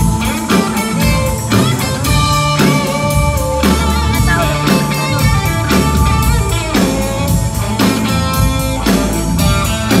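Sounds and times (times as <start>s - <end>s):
bass guitar: 0.0s - 10.0s
drum kit beat: 0.0s - 10.0s
electric guitar: 0.0s - 10.0s.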